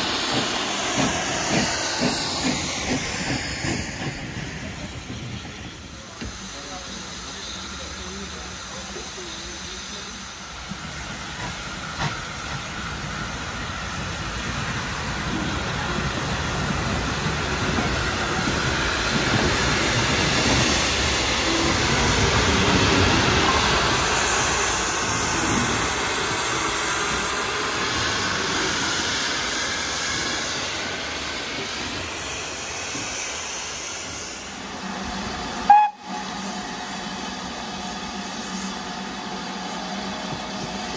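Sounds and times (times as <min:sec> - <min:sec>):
steam locomotive hissing: 0:00.0 - 0:40.9
steam train running past: 0:00.0 - 0:40.9.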